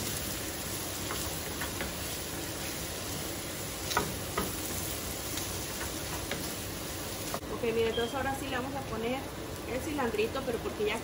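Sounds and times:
shrimp and onion sizzling: 0.0 - 11.0
wooden spoon knocking pan: 3.9 - 4.8.

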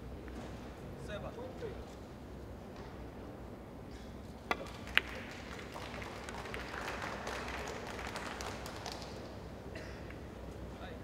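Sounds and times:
low hall noise: 0.0 - 11.0.

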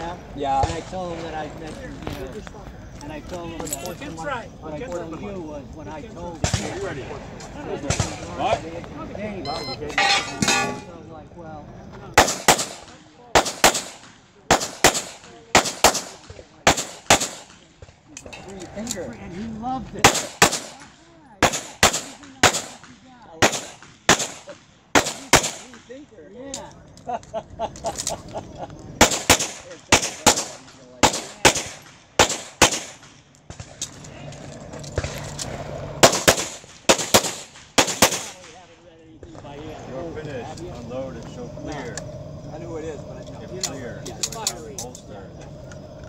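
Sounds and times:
pistol shots: 12.2 - 17.6, 20.0 - 20.8, 21.4 - 25.8, 29.0 - 33.7, 36.0 - 38.6.

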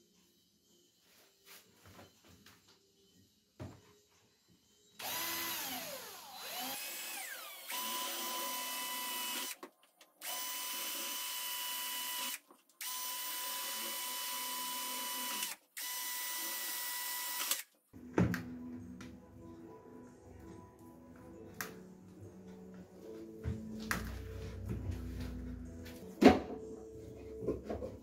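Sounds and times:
cordless drill whining: 5.0 - 9.6, 10.2 - 17.7.

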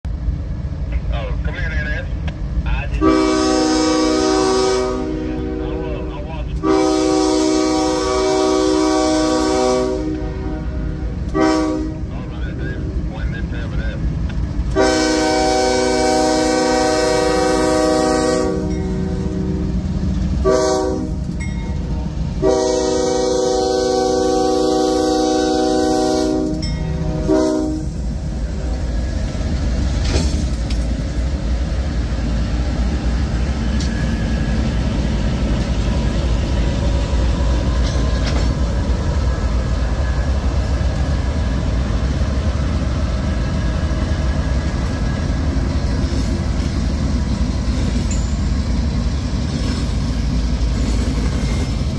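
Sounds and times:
diesel engines rumbling: 0.0 - 51.9
train wheels on rails: 0.0 - 51.9
locomotive air horn blasts: 3.0 - 12.1, 14.7 - 19.8, 20.4 - 21.2, 22.4 - 28.0.

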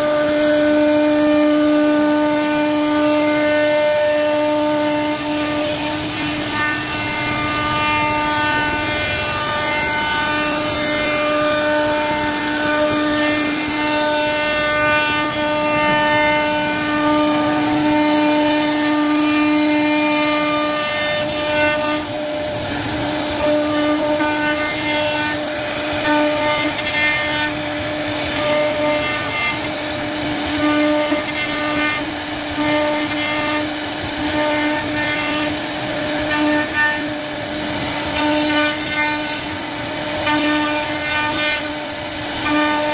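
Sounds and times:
router spindle whine: 0.0 - 33.6
cutter hissing through wood: 0.0 - 42.9.

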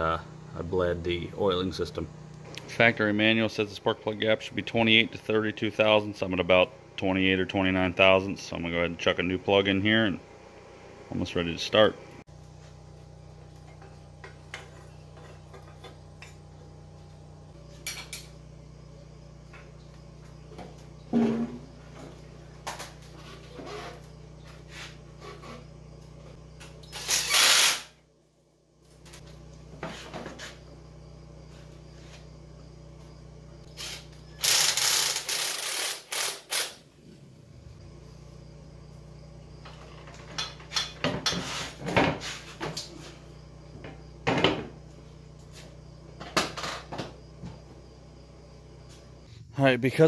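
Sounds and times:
loud hissing bursts: 33.7 - 36.8
hand tools clicking and ratcheting: 34.4 - 36.8.

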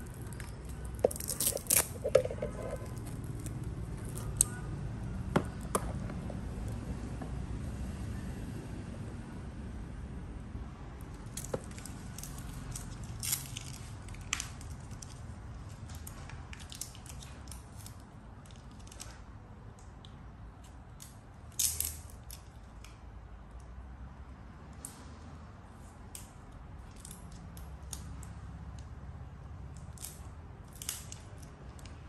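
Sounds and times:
handling clicks and crackles: 0.0 - 7.4, 11.0 - 23.7, 29.6 - 32.0
low steady rumble: 0.0 - 17.2.

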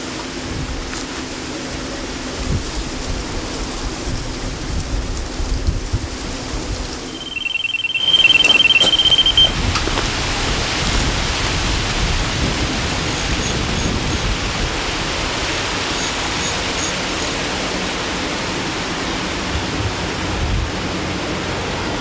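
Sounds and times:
electronic bite alarm beeping: 7.1 - 9.6.

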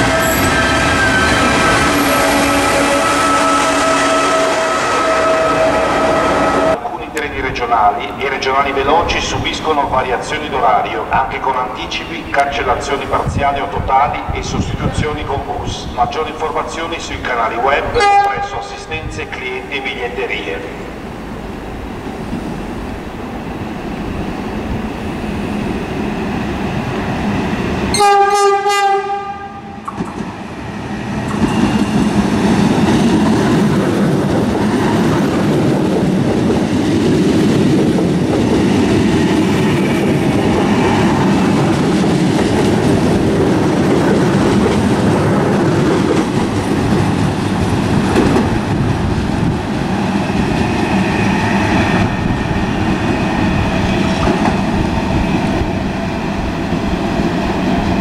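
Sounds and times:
train horn blast: 0.0 - 6.8, 17.9 - 18.6, 27.9 - 29.8
train wheels rumbling: 0.0 - 58.0.

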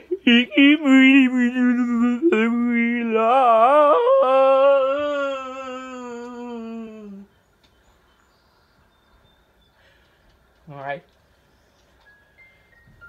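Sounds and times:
person singing long note: 0.1 - 7.3.

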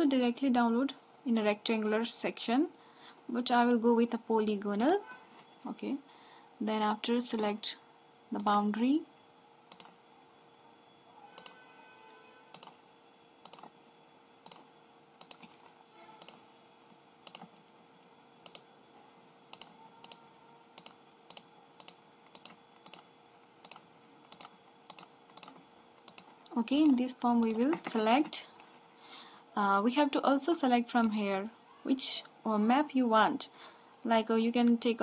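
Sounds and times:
faint steady hum: 0.0 - 35.0
computer mouse clicks: 9.7 - 10.0, 11.4 - 11.6, 12.5 - 12.8, 13.4 - 13.7, 14.4 - 16.4, 17.2 - 17.5, 18.4 - 18.7, 19.5 - 20.2, 20.8 - 26.6.

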